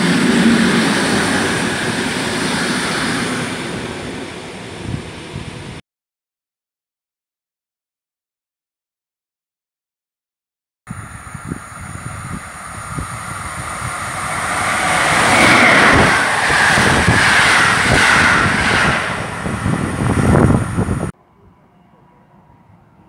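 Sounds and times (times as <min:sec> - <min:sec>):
train passing at speed: 0:00.0 - 0:05.8, 0:10.9 - 0:21.2.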